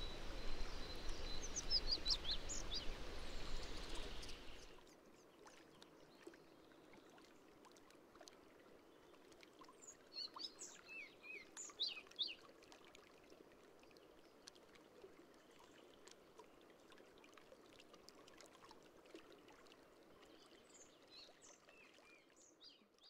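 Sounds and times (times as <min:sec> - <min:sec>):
birdsong chirps: 0:00.0 - 0:04.8.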